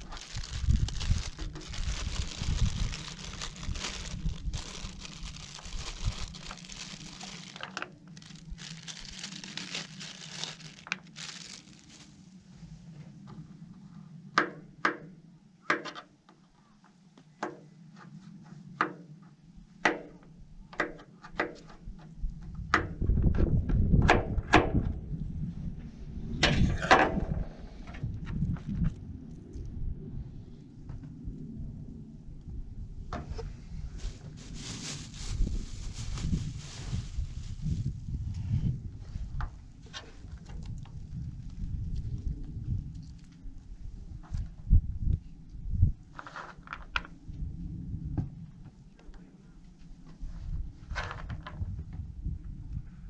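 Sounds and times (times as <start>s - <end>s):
rustling: 0.0s - 12.4s, 33.9s - 37.9s
low rumble: 0.0s - 14.4s, 24.8s - 46.1s.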